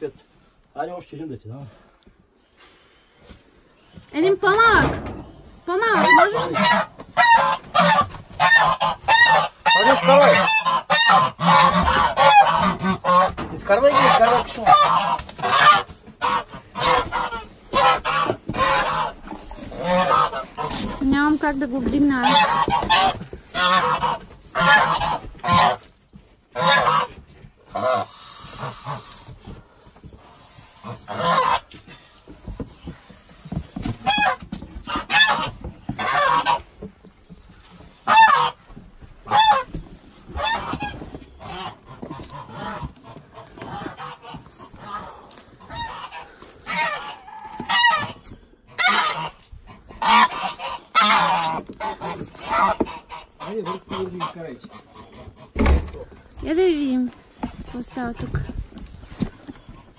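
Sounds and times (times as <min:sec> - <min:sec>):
geese honking: 0:04.4 - 0:25.9, 0:26.5 - 0:29.3, 0:30.6 - 0:31.8, 0:34.0 - 0:36.8, 0:37.6 - 0:55.7.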